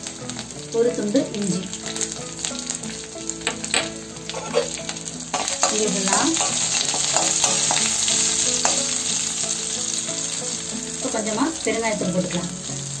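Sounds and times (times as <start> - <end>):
spices sizzling in hot oil: 0.0 - 13.0
spatula scraping metal pan: 3.5 - 9.4.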